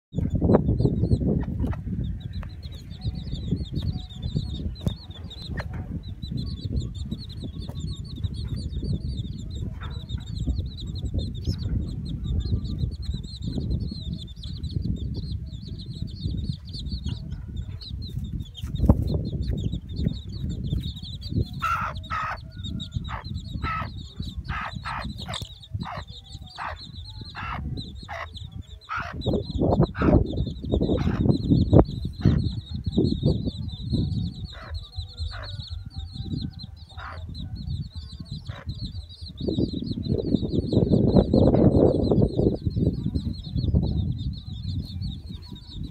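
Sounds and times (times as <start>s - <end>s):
chicks peeping: 0.1s - 45.9s
steady low rumble: 0.1s - 45.9s
hen clucking: 0.2s - 45.9s.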